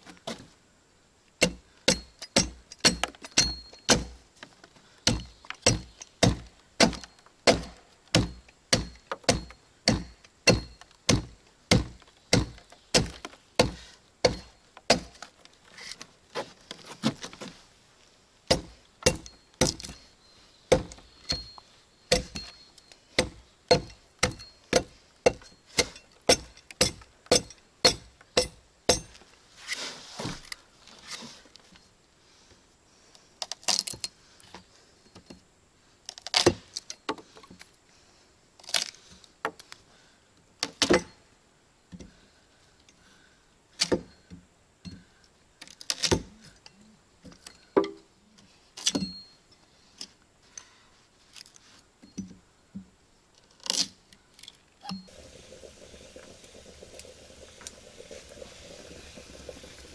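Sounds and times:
hand tool striking: 1.4 - 4.2, 5.1 - 15.1, 18.5 - 20.0, 20.7 - 22.6, 23.2 - 29.2
scraping rustle: 15.2 - 18.1, 29.1 - 31.9.

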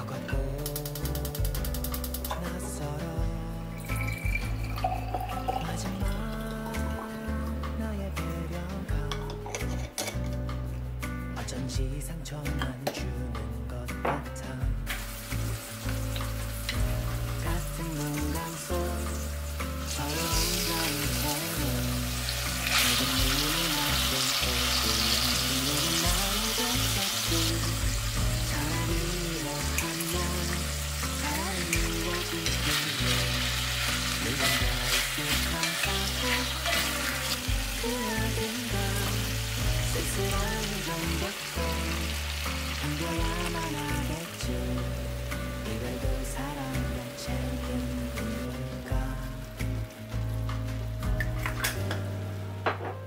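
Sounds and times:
soft background music: 0.0 - 53.0
chicken sizzling in hot oil: 14.8 - 52.5.

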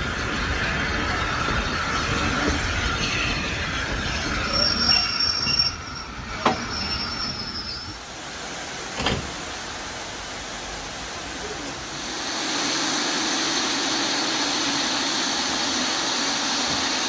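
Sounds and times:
train rolling: 0.0 - 17.0
wheels squealing: 0.1 - 8.1.

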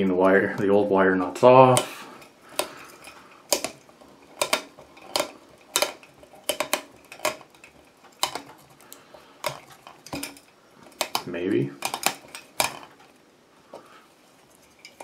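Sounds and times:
plastic wire nuts clicking: 1.4 - 13.2.

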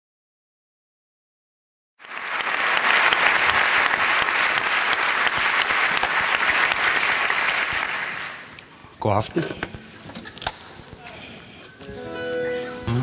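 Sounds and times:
audience applauding: 2.0 - 8.7.

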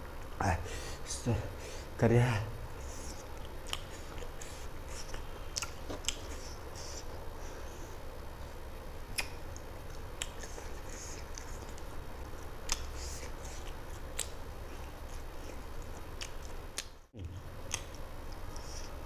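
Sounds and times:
chewing and lip-smacking: 2.9 - 7.1, 9.1 - 19.0.

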